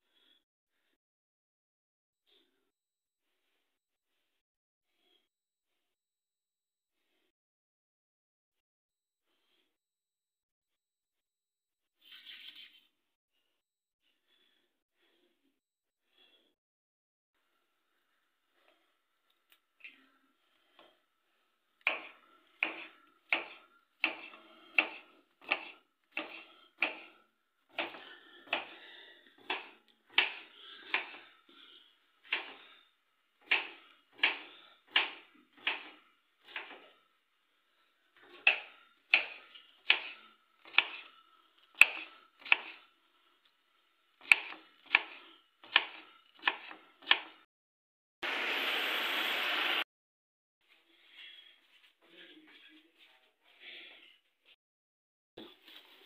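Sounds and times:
knife chopping on a board: 0:21.9 - 0:28.8, 0:29.4 - 0:31.2, 0:32.3 - 0:32.6, 0:33.5 - 0:36.8, 0:38.3 - 0:41.0, 0:41.8 - 0:42.8, 0:44.2 - 0:47.4.

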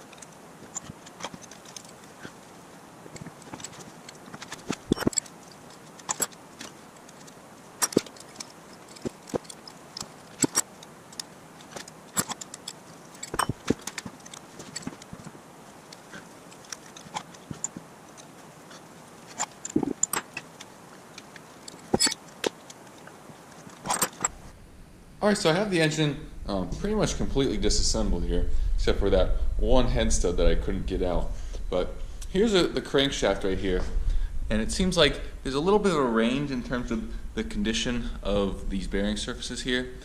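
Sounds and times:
wrenches clinking on metal: 0:00.0 - 0:02.5, 0:03.1 - 0:24.4.

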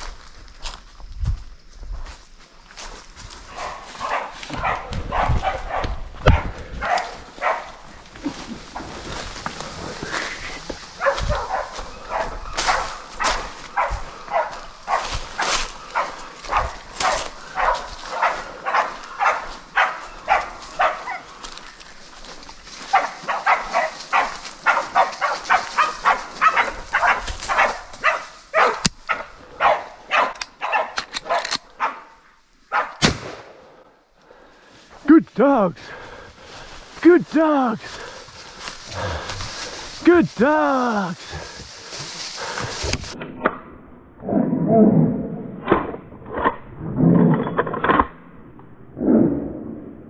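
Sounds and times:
dogs barking: 0:03.5 - 0:08.0, 0:11.0 - 0:21.5, 0:22.8 - 0:33.0.

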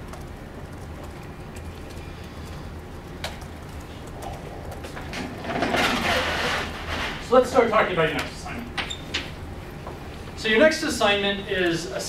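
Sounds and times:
faint clicks and knocks: 0:00.0 - 0:07.1.

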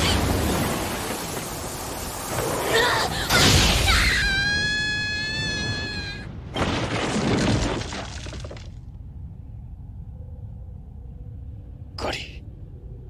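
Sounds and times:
crash and blast: 0:00.0 - 0:04.7
falling high wail: 0:02.7 - 0:06.3.

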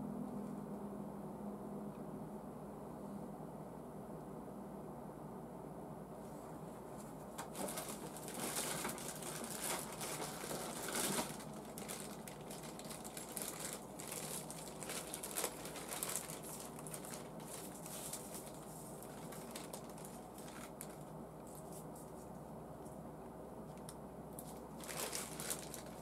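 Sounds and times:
plastic bag crinkling: 0:07.4 - 0:22.1, 0:24.4 - 0:26.0.

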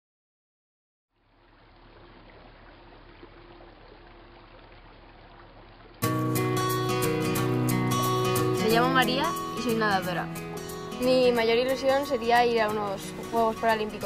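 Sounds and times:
pool water lapping: 0:01.1 - 0:14.0
guitar music: 0:06.0 - 0:14.0.

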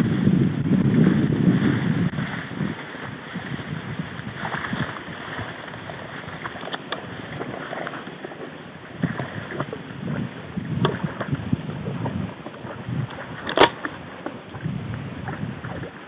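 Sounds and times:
wind buffeting microphone: 0:00.0 - 0:08.1, 0:08.7 - 0:16.0
rustling of grass and reeds: 0:00.0 - 0:16.0
sharp click: 0:13.4 - 0:13.9.

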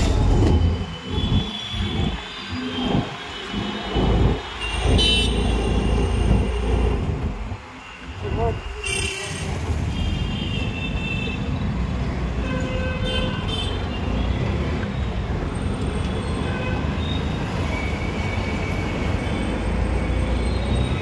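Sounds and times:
auto-rickshaw engine and road rumble: 0:00.0 - 0:21.0
traffic noise: 0:00.0 - 0:21.0.

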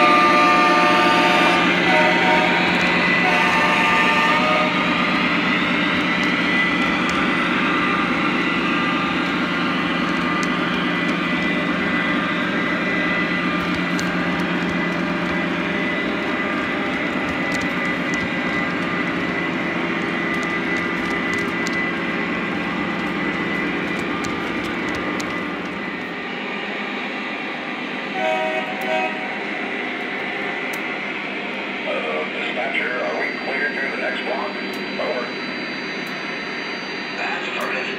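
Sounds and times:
short train horn toots: 0:00.0 - 0:04.9, 0:28.1 - 0:29.4
model train rumbling: 0:00.0 - 0:37.9
thin steady whine: 0:01.0 - 0:37.9.

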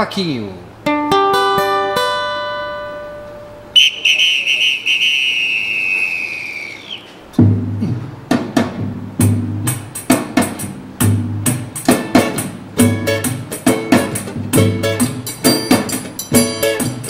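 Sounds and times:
lively percussion ensemble: 0:07.3 - 0:17.0
deep bass drum beat: 0:07.4 - 0:17.0.

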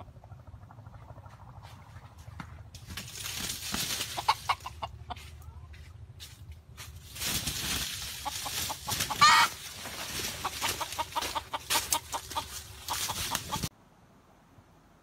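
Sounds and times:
chickens scrabbling in dry leaves: 0:02.8 - 0:13.7
chicken clucks: 0:03.9 - 0:05.9, 0:08.0 - 0:13.7
chicken squawk: 0:04.0 - 0:05.6, 0:08.2 - 0:09.7, 0:10.3 - 0:13.7.

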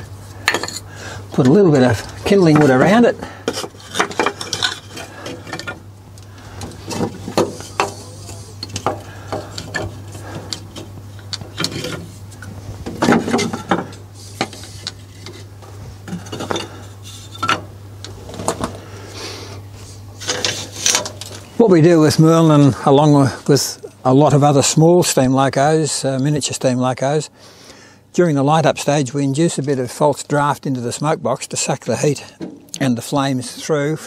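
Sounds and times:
kindling clattering in metal firebox: 0:00.4 - 0:05.9, 0:06.6 - 0:12.1, 0:12.8 - 0:17.7, 0:20.2 - 0:21.4
wood scraping: 0:01.4 - 0:05.8, 0:20.2 - 0:21.5.

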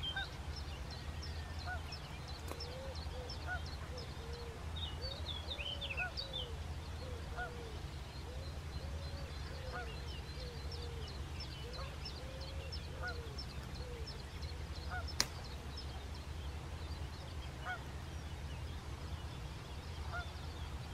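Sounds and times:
small birds chirping: 0:00.0 - 0:20.9
sharp click: 0:15.2 - 0:15.4.

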